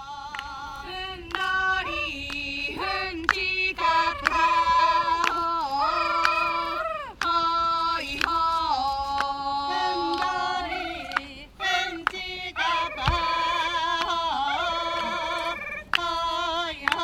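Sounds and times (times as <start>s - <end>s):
women singing together: 0.0s - 17.0s.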